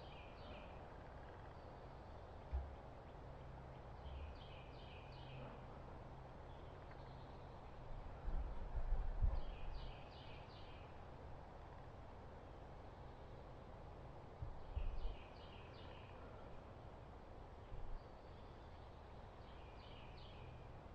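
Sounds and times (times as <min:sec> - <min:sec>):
songbird singing: 0:00.0 - 0:05.7, 0:06.4 - 0:08.0, 0:09.3 - 0:11.1, 0:14.5 - 0:20.7.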